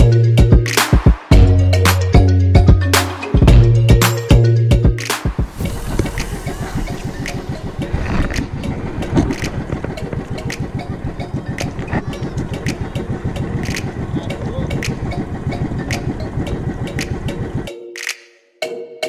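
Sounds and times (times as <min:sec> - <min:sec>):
small engine running: 0:05.6 - 0:17.7.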